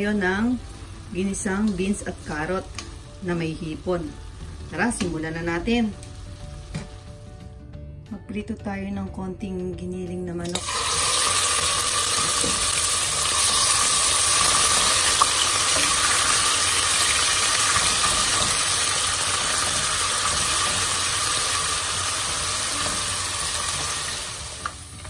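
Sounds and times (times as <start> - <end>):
meat sizzling in hot oil: 10.5 - 25.0.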